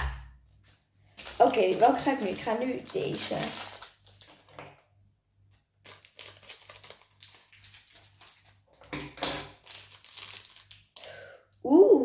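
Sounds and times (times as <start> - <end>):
plastic bag crinkling: 1.1 - 4.9, 5.5 - 11.0.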